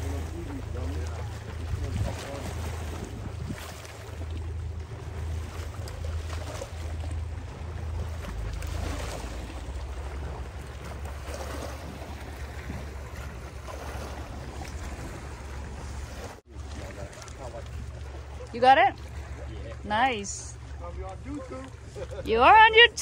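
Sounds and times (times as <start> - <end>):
wind rumbling on microphone: 0.0 - 17.0
waves washing against rocks: 0.0 - 18.9.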